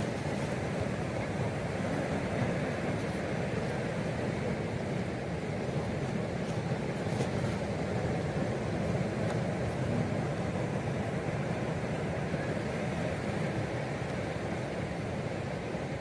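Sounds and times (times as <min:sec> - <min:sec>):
breaking surf rumble: 0:00.0 - 0:16.0
wind: 0:00.0 - 0:16.0.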